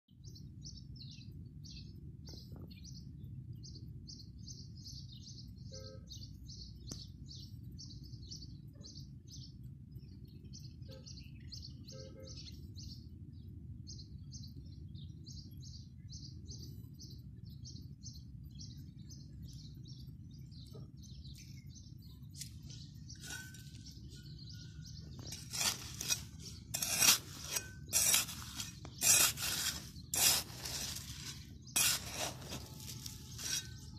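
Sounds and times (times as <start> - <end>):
small bird peeping: 13.9 - 33.9
trowel scraping stony soil: 22.3 - 33.9.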